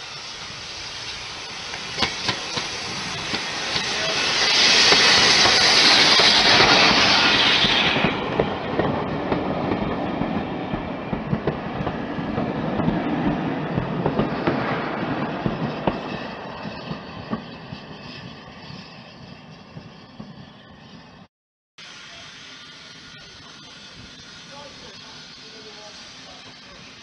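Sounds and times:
loud hiss of steam: 0:00.0 - 0:21.2, 0:21.8 - 0:27.0
train coaches rumbling: 0:00.0 - 0:21.2.

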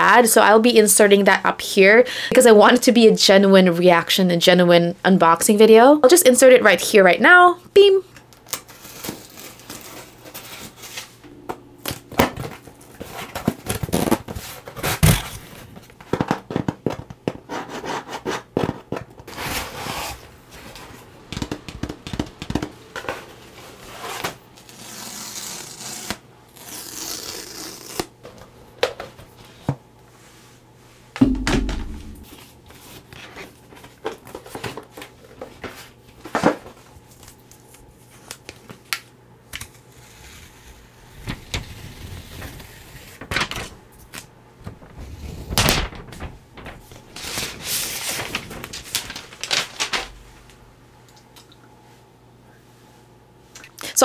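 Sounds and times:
dull thump: 0:31.2 - 0:32.4
cardboard and paper crinkling: 0:44.7 - 0:50.2.

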